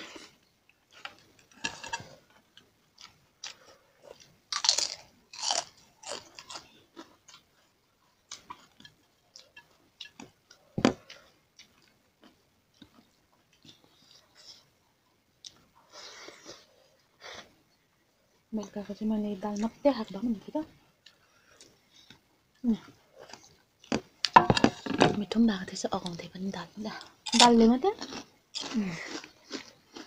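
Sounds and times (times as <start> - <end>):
chewing: 0.1 - 14.8, 21.0 - 24.4, 26.9 - 30.0.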